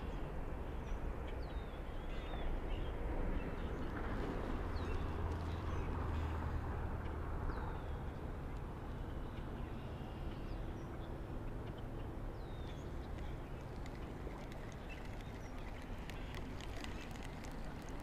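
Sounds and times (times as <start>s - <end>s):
river water flowing: 3.0s - 18.0s.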